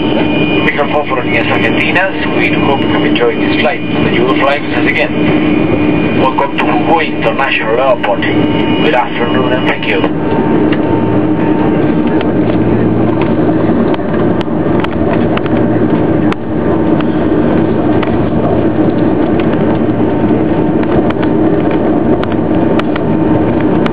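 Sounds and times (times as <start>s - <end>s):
jet engines humming and whining: 0.0s - 23.9s.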